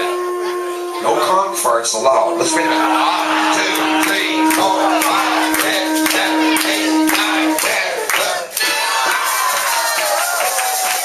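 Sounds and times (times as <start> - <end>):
conch shell blown: 0.0 - 8.2
crowd cheering and clapping: 2.4 - 11.0.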